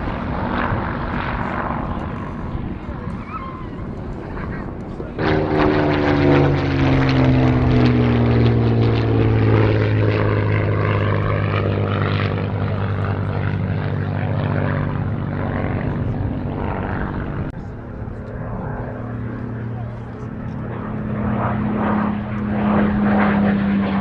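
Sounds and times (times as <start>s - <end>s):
propeller plane engine flypast: 0.0s - 24.0s.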